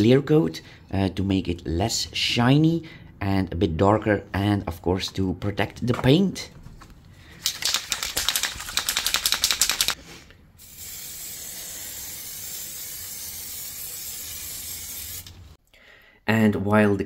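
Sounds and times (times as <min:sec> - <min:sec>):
aerosol can ball rattling: 0:07.4 - 0:10.0
spray can hissing: 0:07.5 - 0:10.0, 0:10.6 - 0:15.6.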